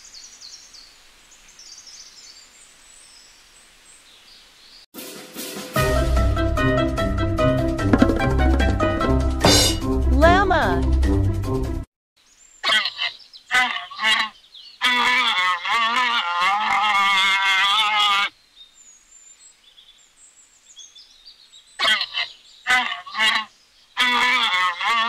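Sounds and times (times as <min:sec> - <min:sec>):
llama calling: 0:12.6 - 0:18.3, 0:21.8 - 0:25.0.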